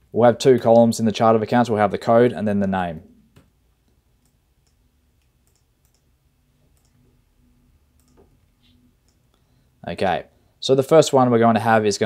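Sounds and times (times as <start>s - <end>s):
computer mouse and keyboard clicks: 4.2s - 6.1s, 6.7s - 7.1s, 8.0s - 9.2s.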